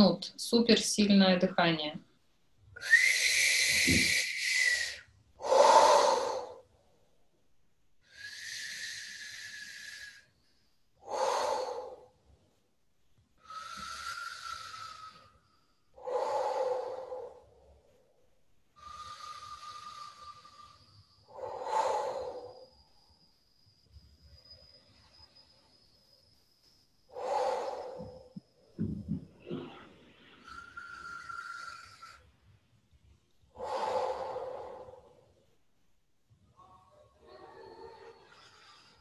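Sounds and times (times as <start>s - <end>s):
woman breathing forcefully: 2.8s - 6.9s, 8.0s - 12.4s, 13.4s - 18.0s, 18.6s - 23.8s, 27.0s - 32.3s, 33.4s - 35.4s.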